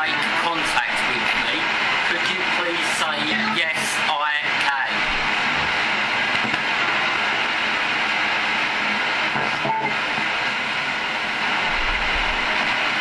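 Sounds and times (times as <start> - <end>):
static hiss: 0.0 - 13.0
short tone blip: 9.6 - 10.0.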